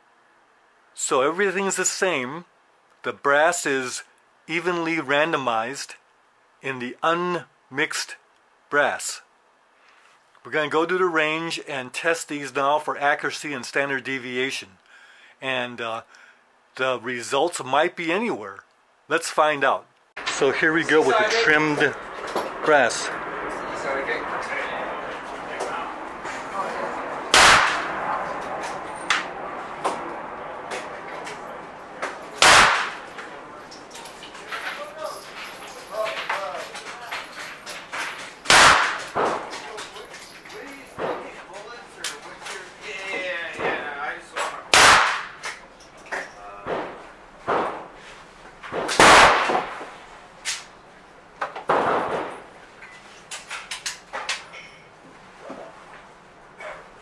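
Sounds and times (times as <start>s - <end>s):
short sharp crack: 27.3s - 28.0s, 32.0s - 33.3s, 38.4s - 39.7s, 44.4s - 45.6s, 48.7s - 50.7s
gunshot echoing: 27.3s - 28.2s, 32.4s - 33.2s, 38.5s - 39.5s, 44.7s - 45.4s, 49.0s - 49.9s
revolver shot with echo: 27.3s - 28.2s, 32.4s - 33.1s
faint sharp cracks: 27.3s - 41.4s, 43.5s - 48.0s, 48.6s - 50.7s.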